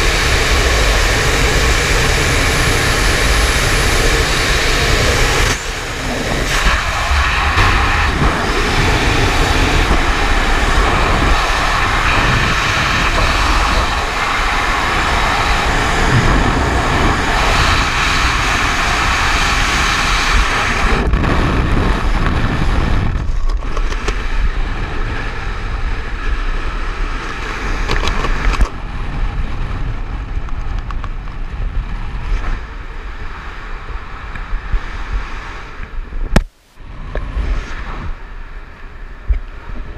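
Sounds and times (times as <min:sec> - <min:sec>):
strong wind roaring over microphone: 0:00.0 - 0:39.9.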